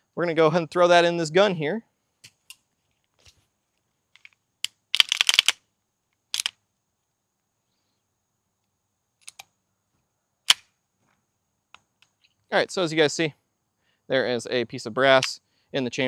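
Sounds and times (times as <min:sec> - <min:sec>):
pistol action metallic clicks: 0:04.2 - 0:05.6, 0:10.5 - 0:10.7.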